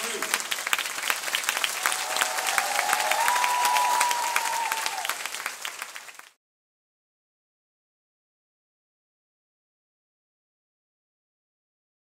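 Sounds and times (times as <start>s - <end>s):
audience applauding: 0.0s - 6.4s
long cheer: 1.6s - 5.6s.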